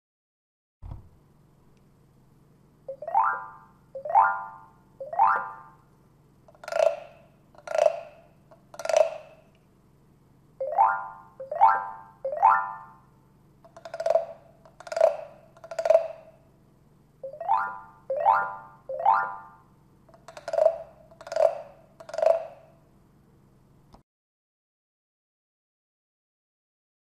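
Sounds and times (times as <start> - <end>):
hollow knocks: 6.5 - 9.4, 13.7 - 16.4.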